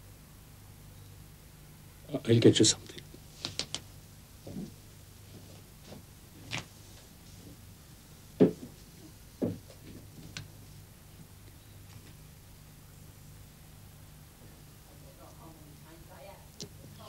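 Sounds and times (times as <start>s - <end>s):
footsteps: 4.4s - 7.6s
soft thuds: 8.4s - 8.8s.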